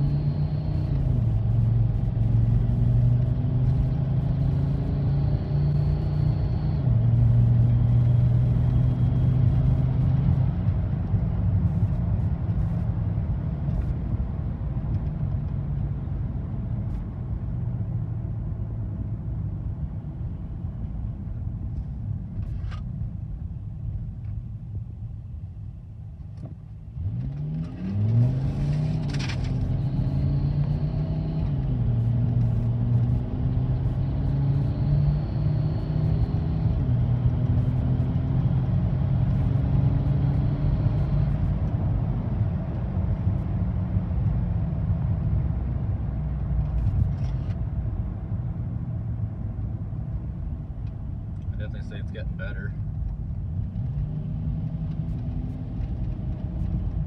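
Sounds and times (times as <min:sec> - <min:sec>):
diesel engine accelerating: 0:00.0 - 0:12.0, 0:26.9 - 0:47.0, 0:49.0 - 0:57.0
road noise: 0:00.0 - 0:57.0.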